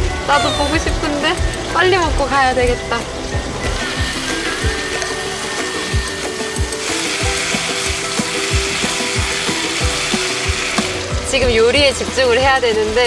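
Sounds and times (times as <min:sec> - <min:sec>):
kick drum beat: 0:00.0 - 0:04.9, 0:05.9 - 0:12.6
distant live concert music: 0:00.0 - 0:12.0
food sizzling in a pan: 0:02.9 - 0:13.0.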